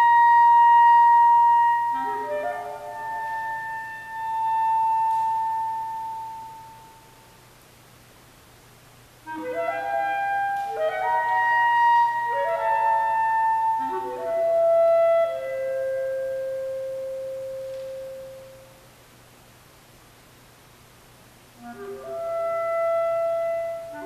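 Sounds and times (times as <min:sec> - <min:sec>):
clarinet playing: 0:00.0 - 0:07.2, 0:09.3 - 0:18.7, 0:21.6 - 0:24.0.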